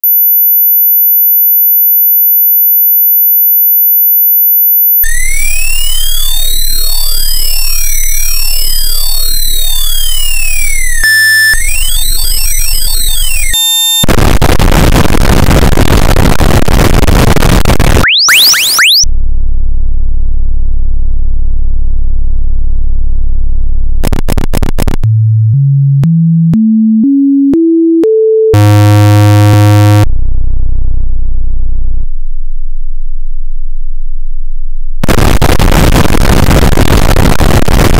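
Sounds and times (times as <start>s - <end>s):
sine tone sweeps: 0.1s - 14.1s, 28.4s - 32.1s
loud buzzy tone: 5.0s - 19.2s, 24.0s - 31.0s, 35.0s - 37.9s
short tones stepping upward: 5.1s - 14.0s, 18.0s - 19.0s, 24.7s - 30.1s.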